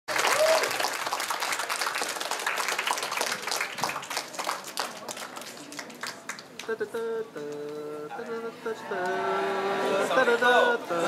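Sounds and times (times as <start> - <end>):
audience applauding: 0.1 - 6.7.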